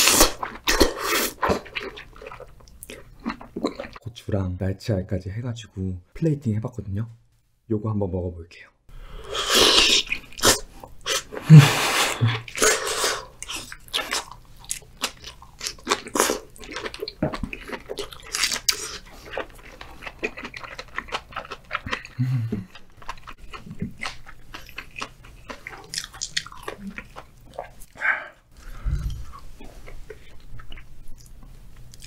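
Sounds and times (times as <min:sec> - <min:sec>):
wet chewing with crunchy clicks: 0:00.2 - 0:04.0, 0:13.4 - 0:28.0, 0:29.8 - 0:32.0.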